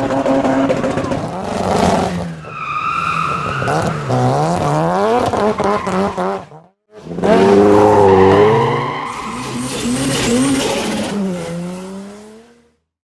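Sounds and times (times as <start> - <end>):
racing car engine revving: 3.3 - 12.8
tyres screeching: 7.5 - 11.4.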